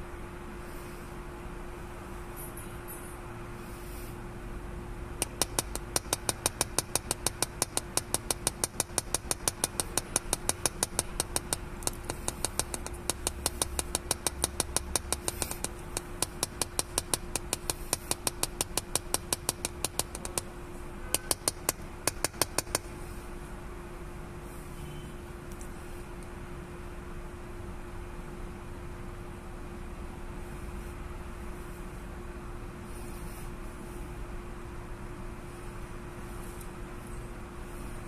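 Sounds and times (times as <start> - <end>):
steady low hum: 0.0 - 38.0
rapid mechanical clicking: 5.2 - 23.0.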